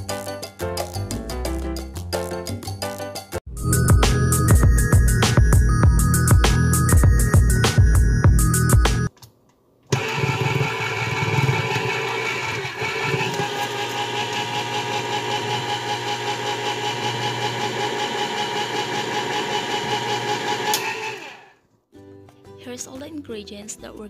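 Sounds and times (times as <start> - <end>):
electric can opener running: 9.9 - 21.6.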